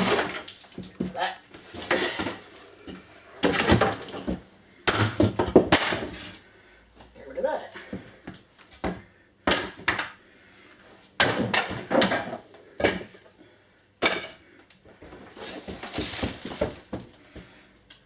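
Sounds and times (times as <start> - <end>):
objects knocking and clattering: 0.0 - 6.2, 11.2 - 13.2, 15.4 - 17.5
objects scraping and rustling: 5.8 - 6.4, 14.9 - 17.5.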